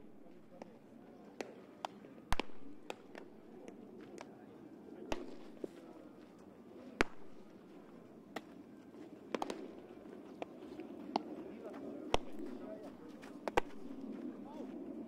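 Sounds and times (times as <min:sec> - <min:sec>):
baseballs popping into mitts: 0:01.4 - 0:04.3, 0:05.1 - 0:05.8, 0:07.0 - 0:07.7, 0:08.3 - 0:08.6, 0:09.3 - 0:09.8, 0:12.1 - 0:12.6, 0:13.3 - 0:14.1.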